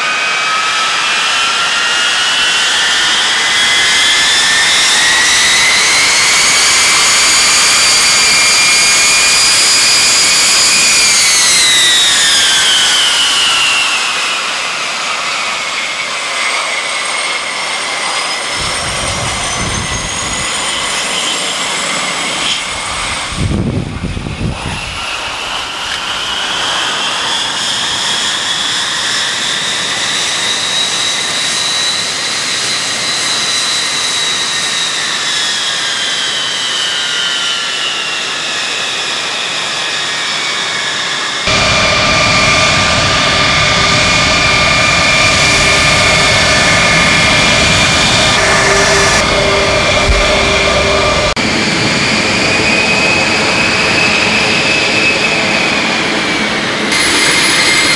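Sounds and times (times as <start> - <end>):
jet engines whining: 0.0 - 57.9
low rumble: 18.6 - 21.1, 41.5 - 52.6.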